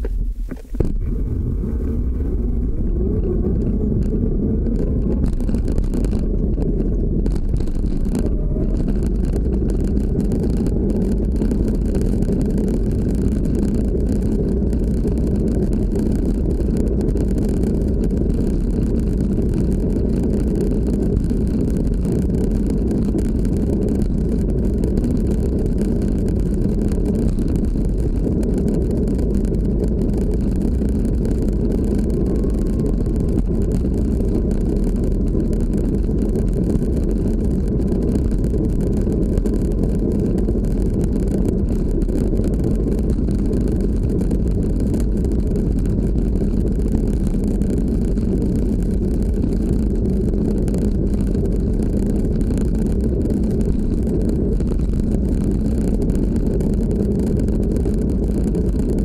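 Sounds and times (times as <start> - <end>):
skateboard tyres rumbling on pavement: 0.0 - 59.0
electric motor whine: 0.5 - 14.2, 30.7 - 35.2.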